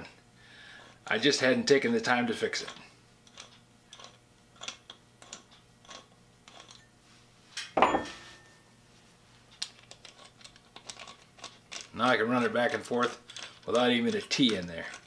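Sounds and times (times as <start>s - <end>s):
ringing metal clank: 7.8s - 8.6s.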